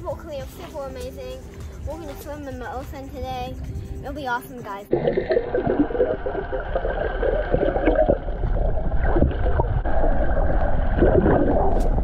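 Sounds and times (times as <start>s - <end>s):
muffled underwater water noise: 4.9s - 12.0s.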